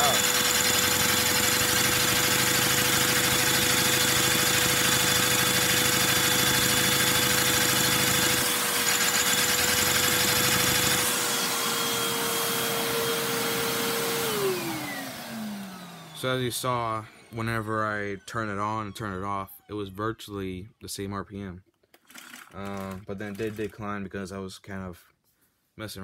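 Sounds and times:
vacuum cleaner running: 0.0s - 19.9s.

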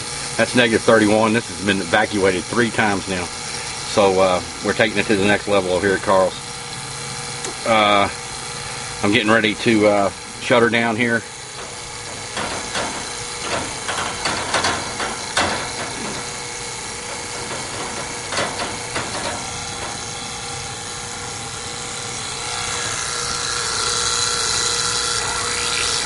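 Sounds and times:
vacuum pump running: 0.0s - 26.0s
valve clicks and knocks: 11.2s - 24.9s.

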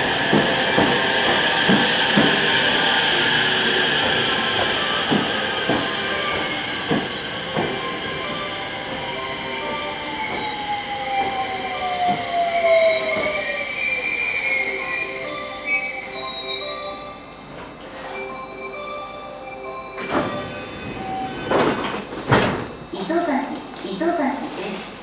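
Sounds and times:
train wheels clacking over rail joints: 0.0s - 8.0s
high brake squeal: 9.7s - 17.5s.

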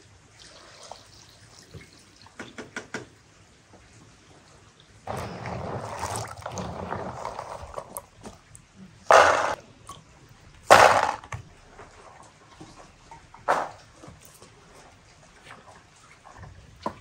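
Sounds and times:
chestnuts clattering into metal pan: 10.7s - 11.3s.

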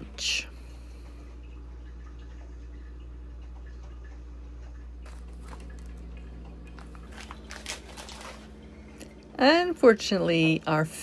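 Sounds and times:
low room hum: 0.0s - 11.0s
chip bag crinkling: 6.7s - 8.7s.

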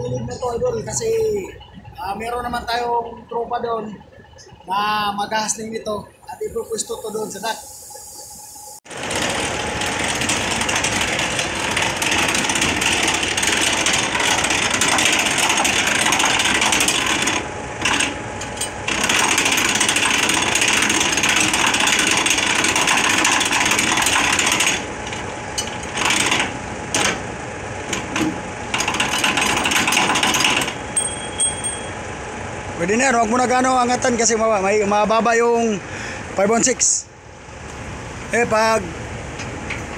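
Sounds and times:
hand crank whirring rattle: 8.9s - 27.2s, 27.9s - 31.8s.

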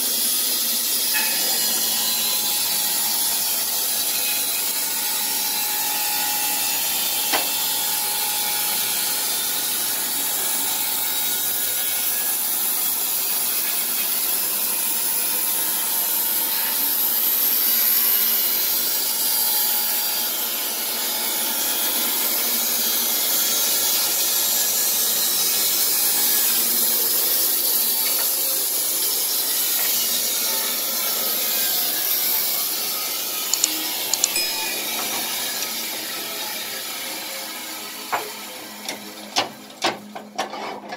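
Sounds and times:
band saw cutting log: 0.0s - 40.9s
sharp click: 33.5s - 34.5s.

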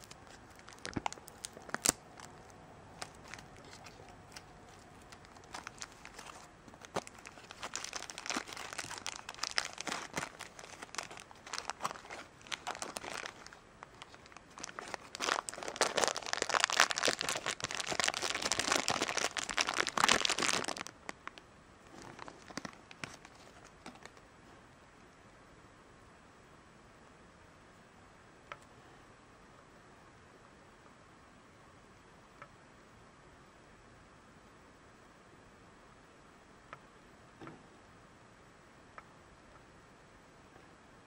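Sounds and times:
plastic wrapper crinkling: 0.0s - 24.2s.

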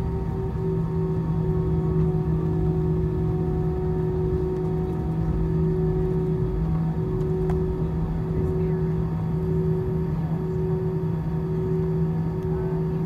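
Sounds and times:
aircraft rolling rumble: 0.0s - 13.0s
jet engines humming at idle: 0.0s - 13.0s.

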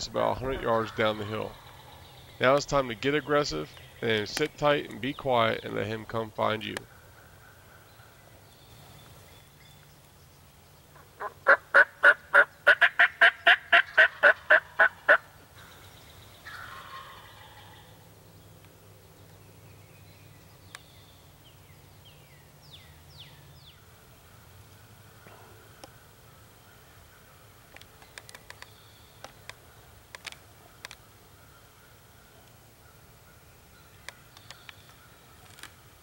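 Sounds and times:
turkey call yelps: 11.0s - 15.3s, 16.4s - 17.9s.

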